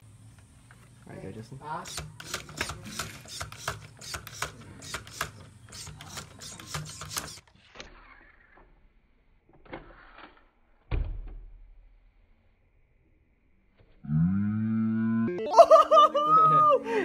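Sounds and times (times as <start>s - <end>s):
plastic toy lever clicking: 1.8s - 7.5s.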